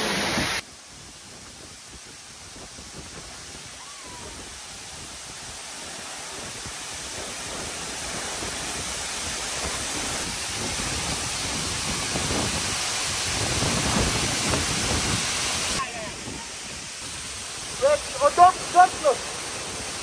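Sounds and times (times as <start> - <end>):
waterfall roaring: 0.0 - 20.0.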